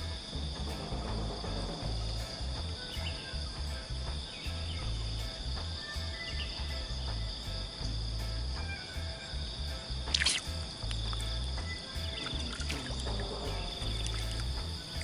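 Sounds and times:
insects droning: 0.0s - 15.0s
low uneven rumble: 10.6s - 15.0s.

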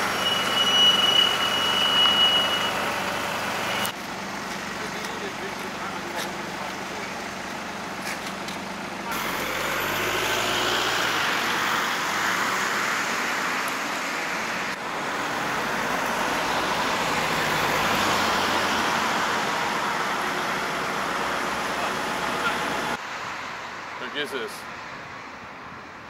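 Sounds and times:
truck engines and road noise: 0.0s - 26.0s.

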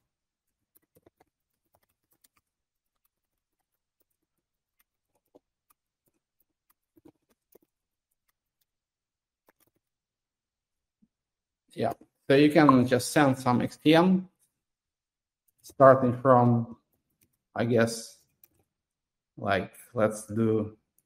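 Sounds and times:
computer keys clicking: 0.4s - 8.8s, 9.4s - 10.0s, 16.8s - 17.5s, 18.2s - 18.7s.

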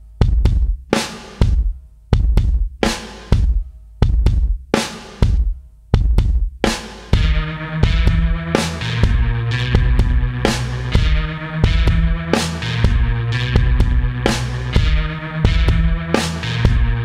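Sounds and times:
drum kit beat: 0.0s - 17.0s
bass line: 7.1s - 17.0s
sustained synth notes: 7.2s - 17.0s.

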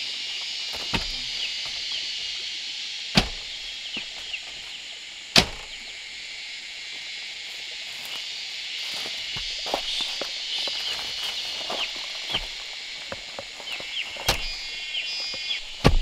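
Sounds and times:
high-pitched background drone: 0.0s - 16.0s
sharp knocks on wood: 0.8s - 1.2s, 3.2s - 3.5s, 5.4s - 5.8s, 15.3s - 16.0s.

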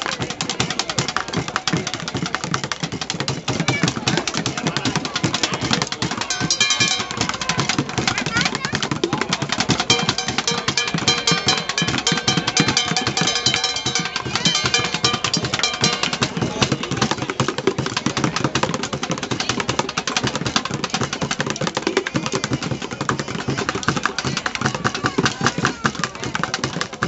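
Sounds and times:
bucket drumming: 0.0s - 27.0s.

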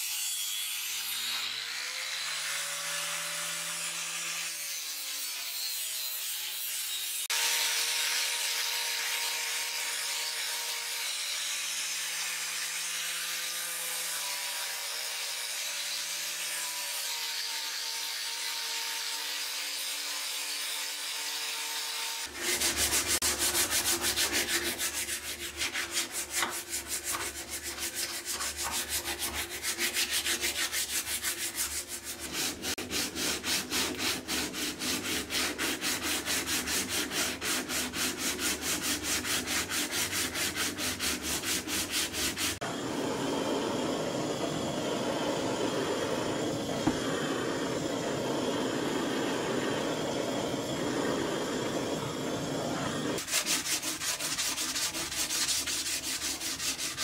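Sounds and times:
angle grinder sanding wood: 0.0s - 57.0s
sandpaper rubbing wood: 17.0s - 42.6s, 53.0s - 57.0s.

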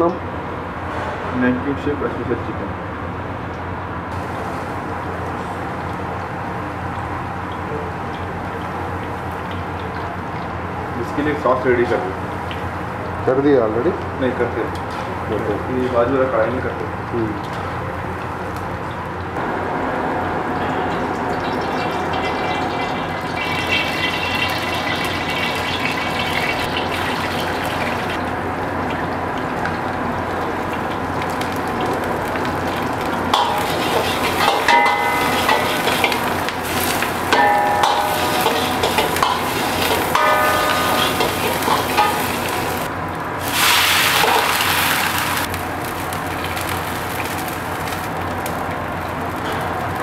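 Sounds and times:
food frying in oil: 4.1s - 15.7s, 20.2s - 50.0s
metal ladle scraping wok: 33.3s - 45.0s.

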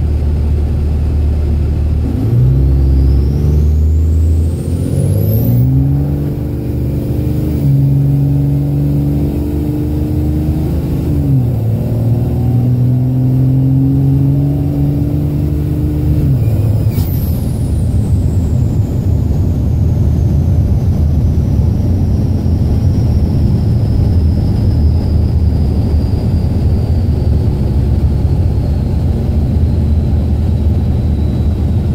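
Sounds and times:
diesel engine pulling: 0.0s - 31.9s
road noise: 0.0s - 31.9s.

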